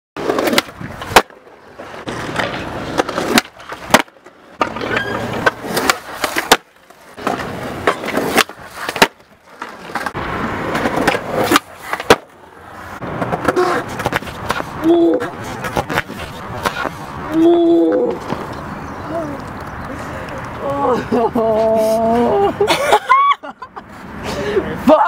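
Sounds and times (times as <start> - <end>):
skateboard tail pops and landings: 0.2 - 1.4, 2.0 - 12.4
skateboards rolling on concrete: 0.2 - 25.0.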